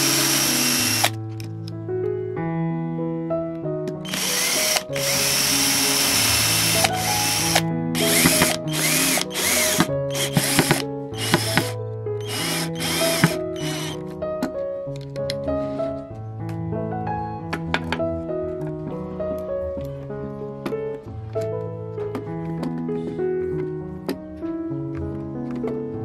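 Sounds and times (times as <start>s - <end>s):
cordless drill driving screws: 0.0s - 1.2s, 4.1s - 14.0s
background music: 0.0s - 26.0s.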